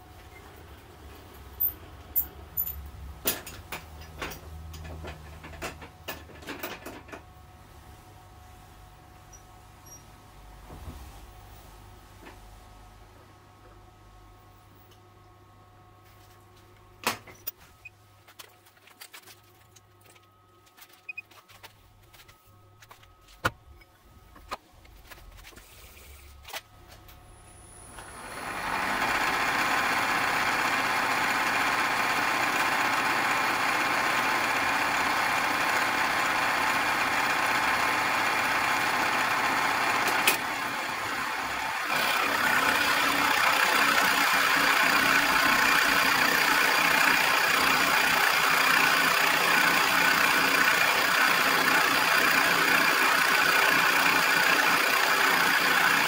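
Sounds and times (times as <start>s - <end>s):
milling machine spindle running: 27.9s - 56.0s.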